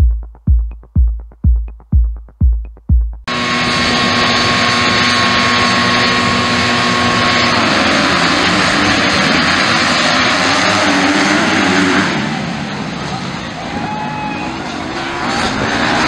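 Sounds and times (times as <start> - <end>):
motocross bike engines revving: 3.3 - 16.0.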